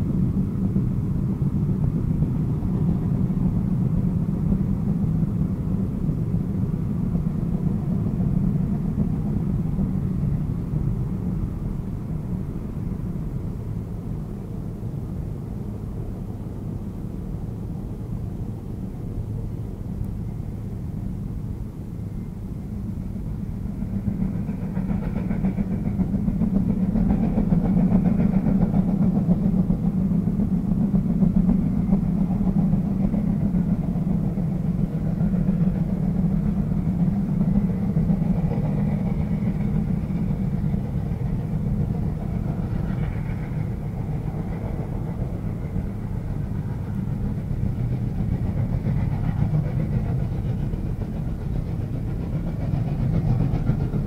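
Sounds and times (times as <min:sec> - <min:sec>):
steam train rumbling: 0:00.0 - 0:54.0.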